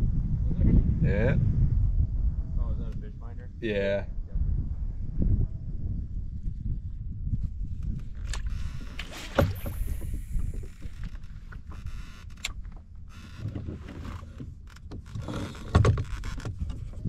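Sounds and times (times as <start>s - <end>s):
wind rumbling on microphone: 0.0s - 17.0s
water lapping against kayak hull: 7.7s - 17.0s
gear knocks and clicks: 7.8s - 17.0s.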